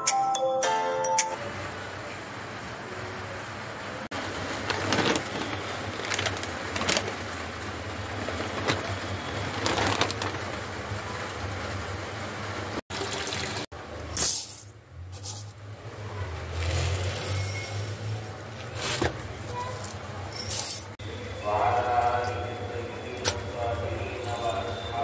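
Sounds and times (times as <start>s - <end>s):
kitchen rustling: 4.1s - 10.7s, 14.2s - 15.6s, 16.6s - 21.0s
scrapes and clinks: 14.2s - 15.6s, 17.0s - 18.5s, 19.7s - 21.0s.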